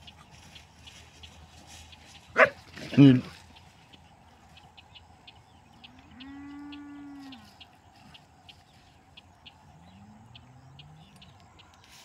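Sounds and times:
cattle mooing: 5.8s - 7.6s.

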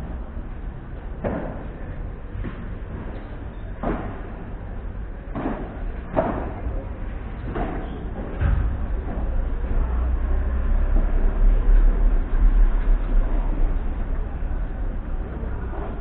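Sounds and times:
ball hit with paddles: 3.8s - 4.3s, 5.3s - 6.6s.

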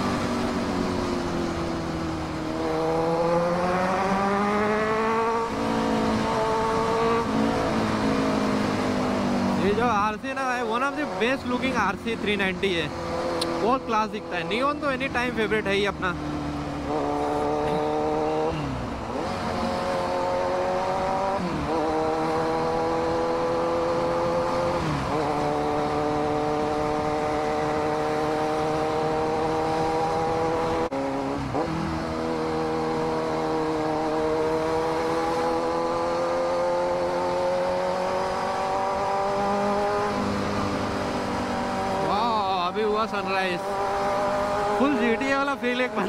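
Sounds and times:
motorcycle engine accelerating: 0.0s - 46.0s.

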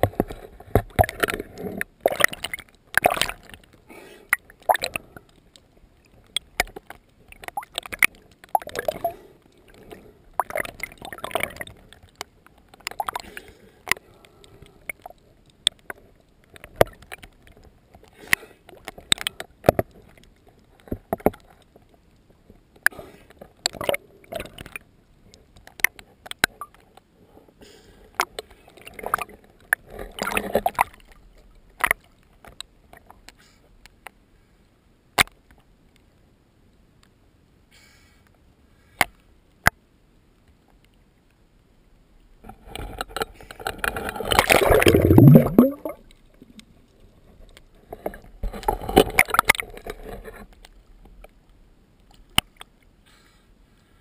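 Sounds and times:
water splashing around boat: 0.0s - 26.7s, 42.5s - 51.4s.

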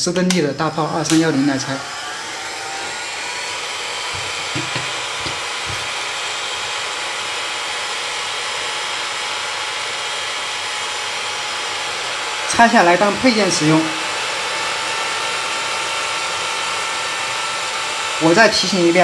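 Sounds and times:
hot air gun blowing: 0.6s - 19.0s.

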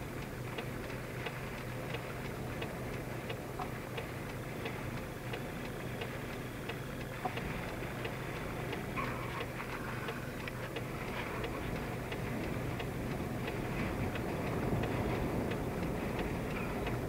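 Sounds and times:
vehicle cabin hum: 0.0s - 17.0s
indicator relay clicking: 0.2s - 17.0s.

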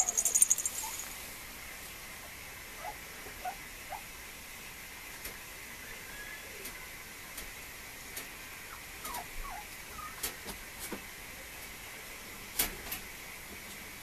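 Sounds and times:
puppy whimpering squeaks: 9.0s - 10.2s.

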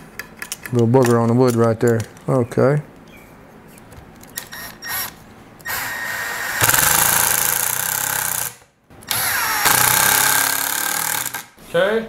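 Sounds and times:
cordless drill driving screws: 4.4s - 11.5s.

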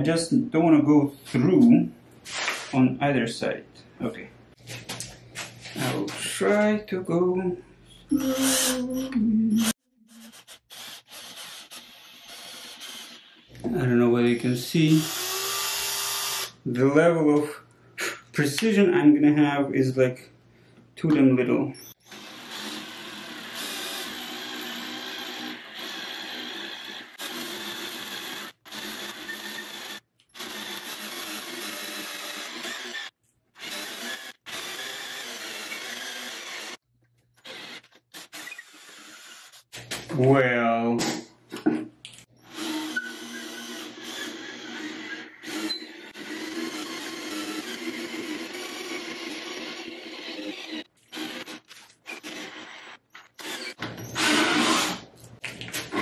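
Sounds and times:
cordless drill boring into wood: 8.1s - 8.8s, 9.6s - 13.6s, 14.9s - 16.6s, 21.9s - 36.8s, 37.4s - 39.7s, 42.4s - 55.0s.

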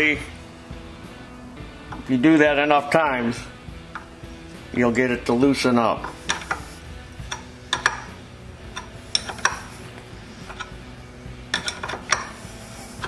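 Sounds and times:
wrench clicking on metal: 6.0s - 12.5s.

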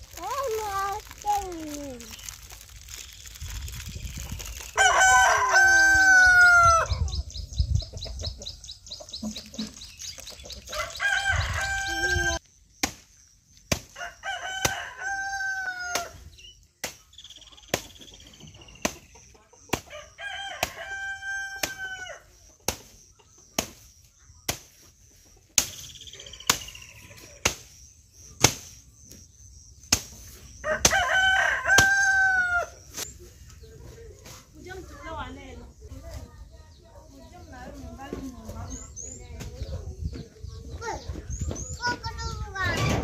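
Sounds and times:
rooster crowing: 4.8s - 6.9s, 10.7s - 12.4s, 14.0s - 16.2s, 30.6s - 32.7s
machete chopping grass: 12.7s - 14.0s, 16.8s - 18.1s, 21.5s - 21.8s, 22.6s - 23.0s, 23.6s - 24.9s, 25.5s - 25.9s, 26.5s - 26.8s, 27.4s - 28.9s, 29.8s - 31.1s, 31.7s - 32.1s.

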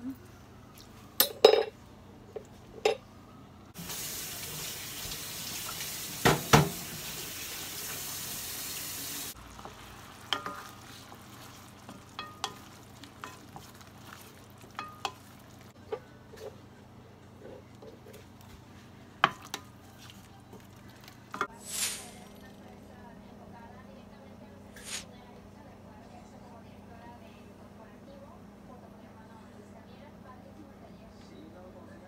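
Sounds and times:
pot sizzling on stove: 3.8s - 15.8s, 19.2s - 22.4s
wooden spoon stirring in metal pot: 9.4s - 21.6s.

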